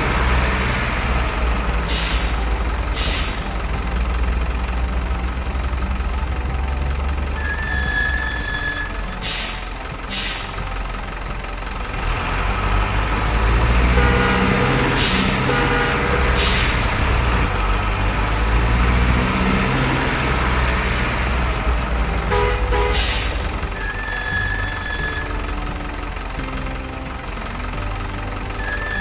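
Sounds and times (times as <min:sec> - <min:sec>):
diesel truck engine under load: 0:00.0 - 0:29.0
horn toots: 0:07.4 - 0:10.5, 0:13.6 - 0:17.6, 0:22.2 - 0:25.4.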